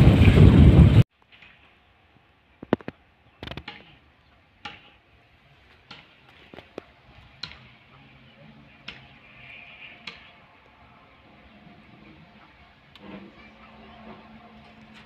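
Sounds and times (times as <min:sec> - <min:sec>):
distant freight train rolling: 0:05.0 - 0:15.0.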